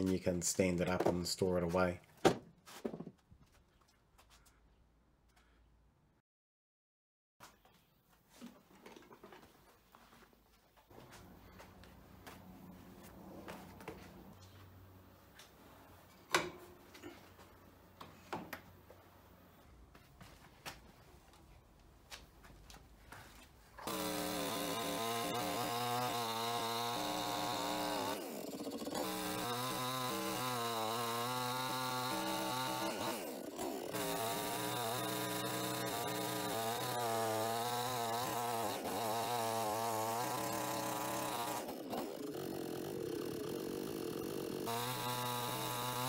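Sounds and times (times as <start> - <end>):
chainsaw cutting log: 23.8 - 46.0.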